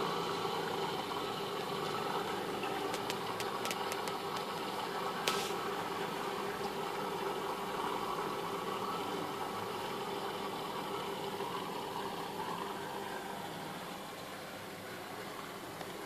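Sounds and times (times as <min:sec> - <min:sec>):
aquarium filter pump humming: 0:00.0 - 0:16.0.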